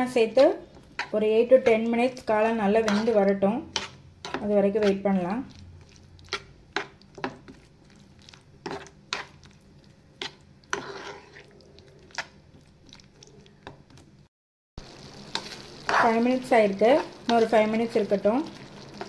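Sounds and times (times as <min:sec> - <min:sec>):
gravy sizzling: 0:00.0 - 0:14.2, 0:14.8 - 0:19.0
spoon scraping a pan: 0:00.1 - 0:05.2, 0:05.8 - 0:07.7, 0:08.6 - 0:09.6, 0:10.2 - 0:12.4.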